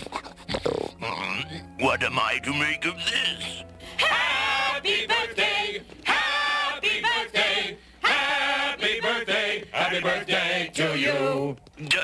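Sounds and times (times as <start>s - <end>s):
voices chanting together: 4.0s - 11.6s.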